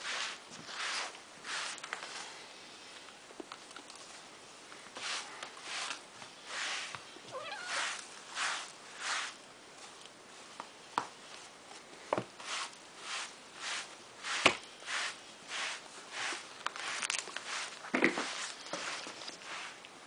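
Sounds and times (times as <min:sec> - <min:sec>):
hand rubbing cat fur: 0:00.0 - 0:02.3, 0:04.9 - 0:10.0, 0:12.4 - 0:19.8.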